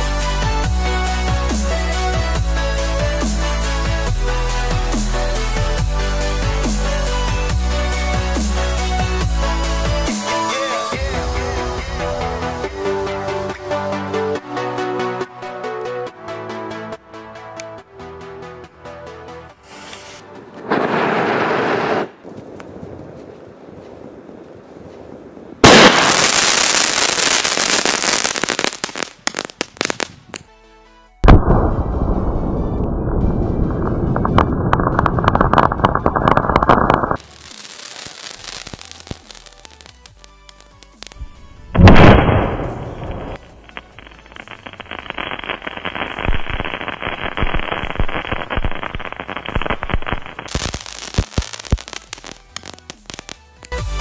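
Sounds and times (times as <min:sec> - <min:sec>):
music: 0:00.0 - 0:21.0, 0:25.8 - 0:54.0
fireworks rushing hiss: 0:19.6 - 0:22.2, 0:25.6 - 0:30.2, 0:34.0 - 0:54.0
fireworks crackling pops: 0:19.6 - 0:30.5, 0:31.2 - 0:54.0
fireworks loud bang: 0:20.6 - 0:22.2, 0:25.6 - 0:27.4, 0:41.8 - 0:45.2.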